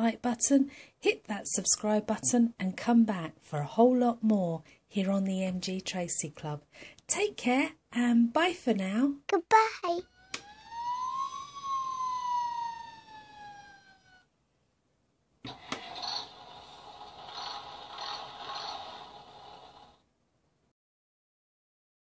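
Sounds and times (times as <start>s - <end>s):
toy siren wail: 10.0s - 14.3s.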